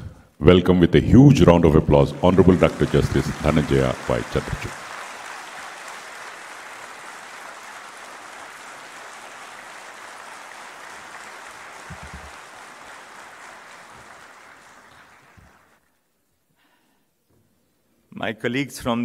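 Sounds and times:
large audience clapping: 1.6s - 16.0s.

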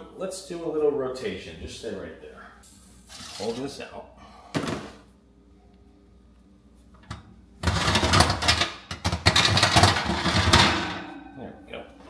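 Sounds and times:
metal clank: 9.3s - 11.8s.

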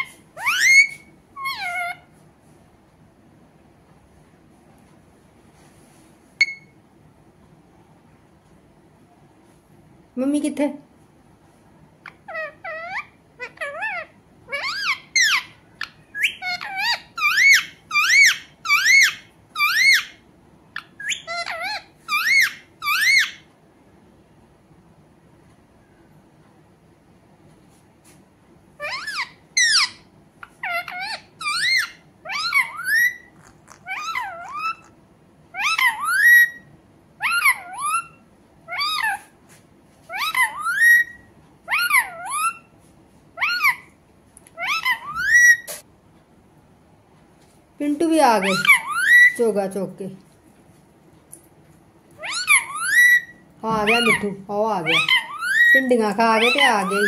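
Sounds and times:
parakeet squawking: 0.0s - 2.1s, 12.0s - 23.4s, 28.8s - 39.3s, 40.1s - 42.7s, 43.4s - 43.9s, 44.6s - 45.8s, 48.3s - 49.4s, 52.2s - 57.0s.

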